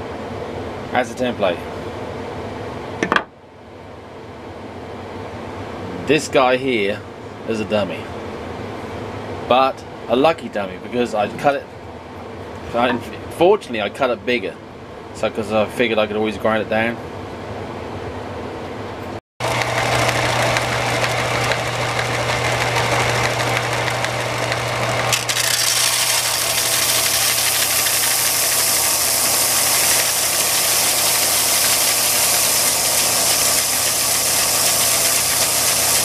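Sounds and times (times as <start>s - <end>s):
belt sander motor hum: 19.4s - 36.0s
wood grinding on sanding belt: 19.4s - 36.0s.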